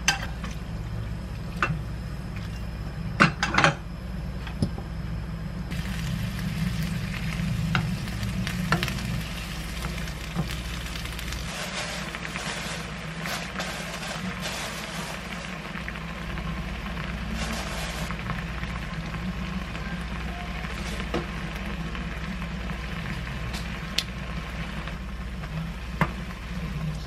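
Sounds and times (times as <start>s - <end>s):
low hum: 0.0s - 27.0s
sauce bubbling and sizzling in pan: 5.7s - 27.0s.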